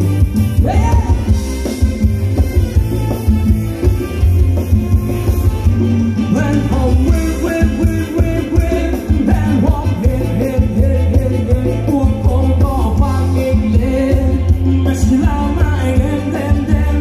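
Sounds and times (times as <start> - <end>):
live band dance music: 0.0 - 17.0.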